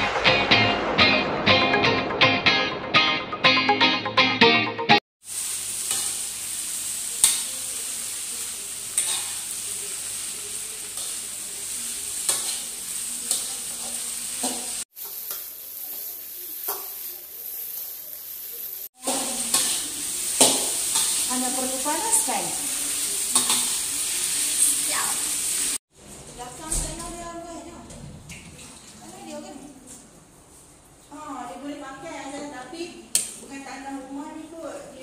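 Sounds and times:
food sizzling in a wok: 5.2 - 25.8.

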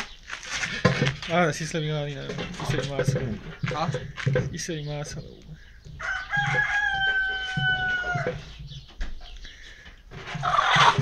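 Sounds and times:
chicken squawking: 10.3 - 11.0.

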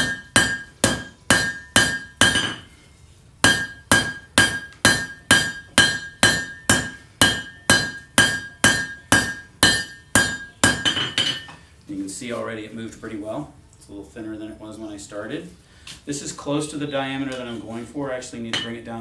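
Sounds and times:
hammer striking steel on anvil: 0.0 - 2.7, 3.4 - 11.6.

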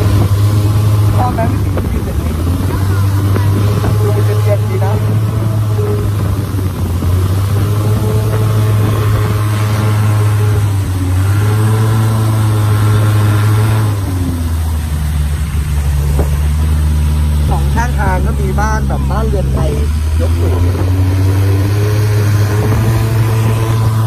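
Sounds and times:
boat engine running: 0.0 - 24.0
water washing along hull: 0.0 - 24.0.

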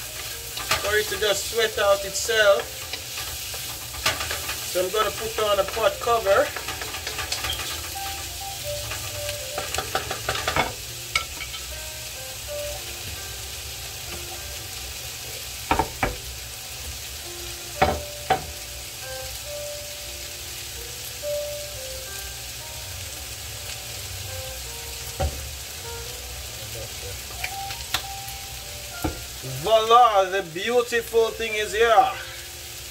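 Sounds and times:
vegetables sizzling in a pan: 0.0 - 32.9
wooden spoon scraping vegetables: 0.2 - 10.6.

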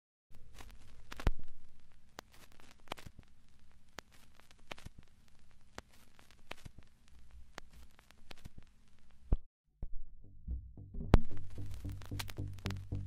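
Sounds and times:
low steady hum: 10.0 - 13.0
synthpop music: 10.3 - 13.0
faint sharp clicks: 11.7 - 13.0.

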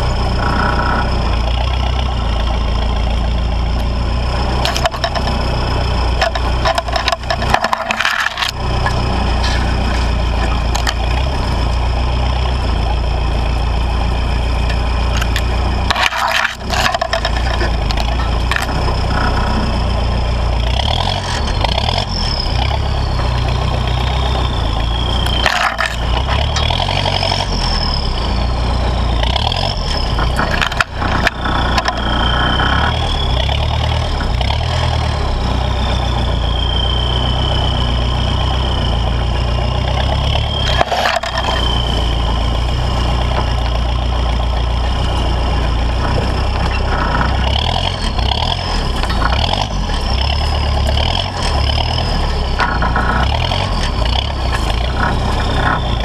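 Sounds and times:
diesel engine pulling under load: 0.0 - 56.0
turbo whistle: 35.5 - 42.3.

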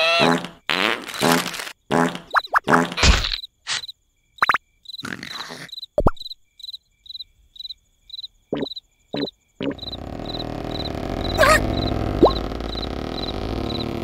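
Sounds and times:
cartoon noises: 0.0 - 3.8, 8.6 - 12.6
cricket chirping: 1.0 - 14.0.

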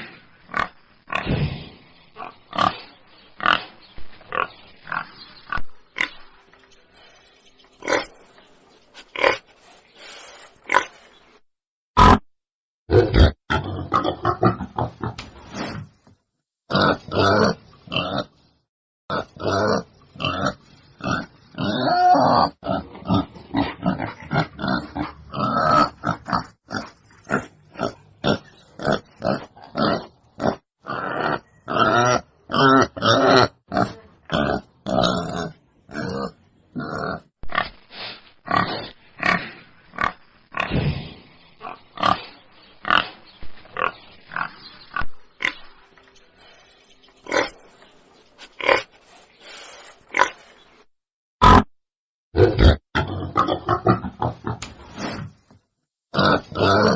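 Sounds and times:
wild boar grunting: 19.1 - 44.6, 51.4 - 51.7, 52.4 - 55.3, 56.1 - 56.9.

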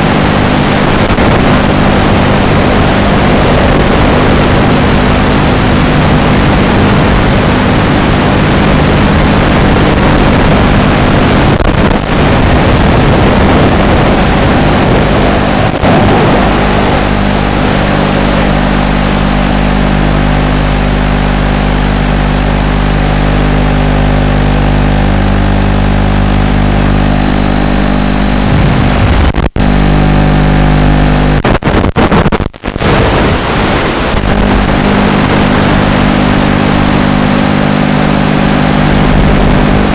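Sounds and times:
loud static hiss: 0.0 - 39.9
low multi-tone buzz: 0.0 - 39.9.

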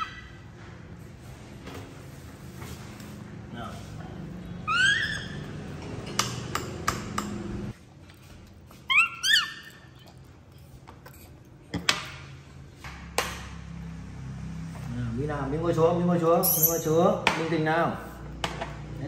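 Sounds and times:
baby monkey squeaky calls: 0.0 - 0.4, 4.6 - 5.7, 8.8 - 10.1, 16.4 - 17.0.

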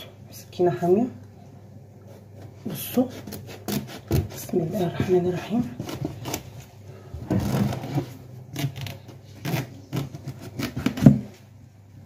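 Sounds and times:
knife cutting through squash: 2.1 - 6.6, 7.3 - 11.3.

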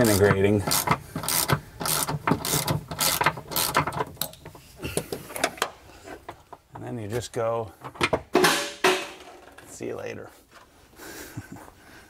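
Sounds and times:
ratchet wrench clicking: 0.0 - 3.9.

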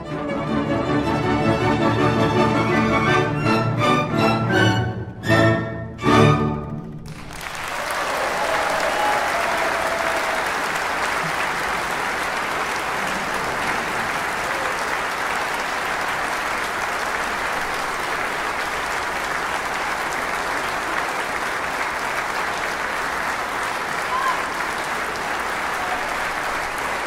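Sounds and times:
audience applauding: 7.0 - 27.0.

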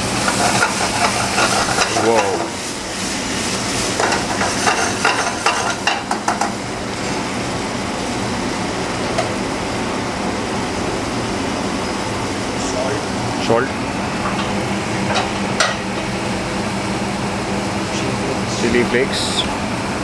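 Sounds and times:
vegetables sizzling in butter: 0.0 - 6.2.

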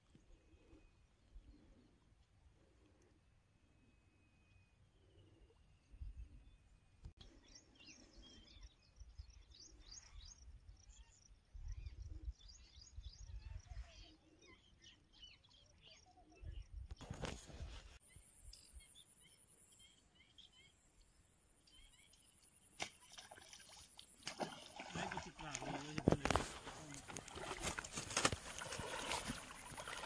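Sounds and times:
birds chirping: 18.0 - 30.0.

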